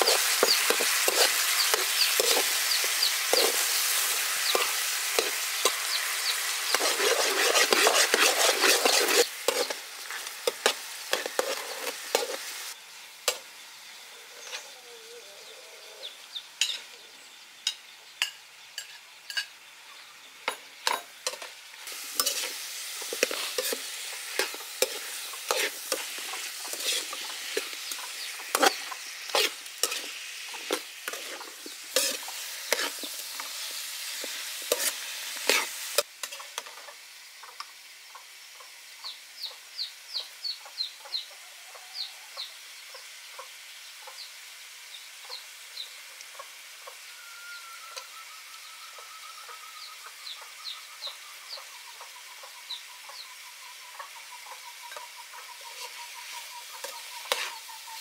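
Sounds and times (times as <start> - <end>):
metal ladle scraping wok: 0.0 - 12.8, 20.9 - 36.5, 56.7 - 58.0
sauce sizzling in a wok: 0.0 - 58.0.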